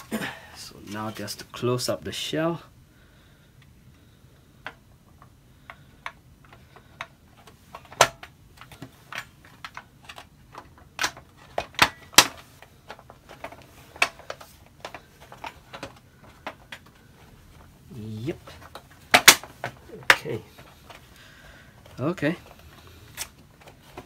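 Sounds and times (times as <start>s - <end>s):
plastic parts clicking together: 4.6s - 17.7s, 18.3s - 21.2s, 21.8s - 24.0s.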